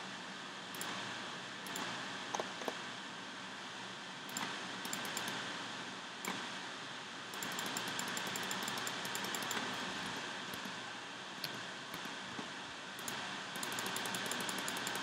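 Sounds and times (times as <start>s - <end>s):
steady hiss: 0.0s - 15.0s
computer mouse clicking: 1.6s - 2.8s, 4.3s - 5.4s, 7.3s - 9.8s, 13.0s - 15.0s.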